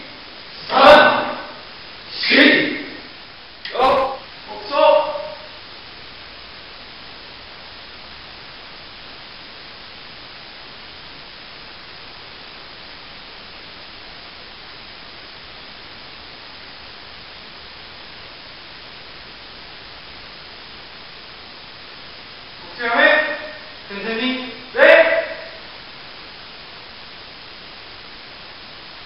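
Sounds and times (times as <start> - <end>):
steady recording hiss: 0.0 - 29.0.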